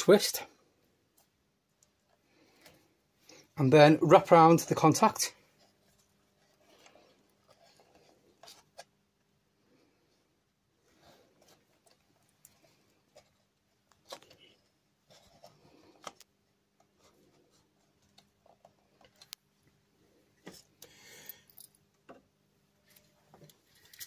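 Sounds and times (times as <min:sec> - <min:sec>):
faint clicks and rubbing of wire: 0:11.0 - 0:19.7.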